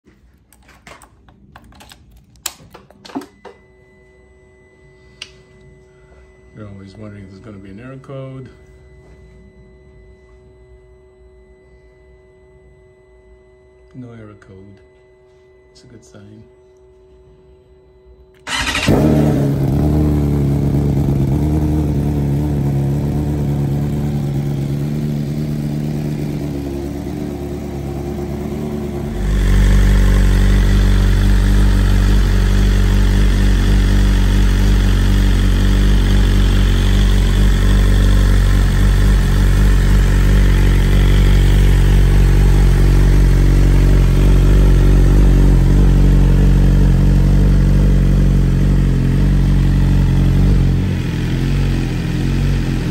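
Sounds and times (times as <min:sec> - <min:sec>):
motorcycle engine idling: 0:18.4 - 0:52.9.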